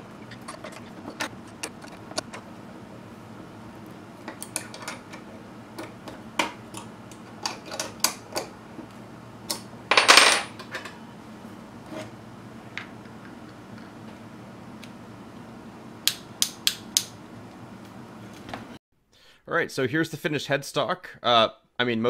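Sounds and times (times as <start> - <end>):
metal parts rattle: 0.2 - 2.3.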